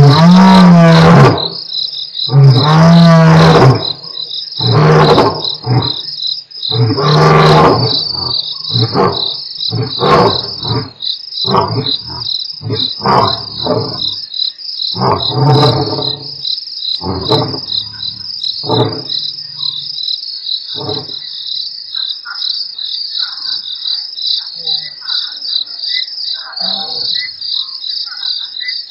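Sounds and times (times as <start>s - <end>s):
grunting roars: 0.0s - 1.6s, 2.3s - 4.0s, 4.6s - 6.0s, 6.7s - 14.2s, 15.0s - 16.4s, 17.0s - 19.2s, 20.8s - 21.2s
lions roaring: 0.0s - 1.6s, 2.3s - 6.1s, 6.7s - 14.2s, 15.0s - 16.4s, 17.0s - 19.8s, 20.7s - 21.2s
crickets chirping: 0.0s - 28.9s.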